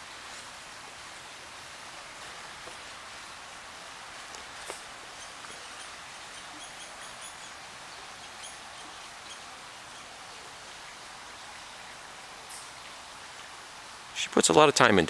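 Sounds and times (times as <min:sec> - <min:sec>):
small bird chirping: 0:04.6 - 0:10.2.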